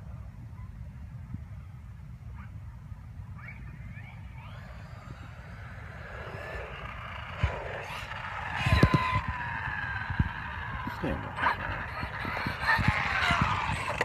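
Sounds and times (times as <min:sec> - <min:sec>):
electric motor whining: 0:04.1 - 0:14.0.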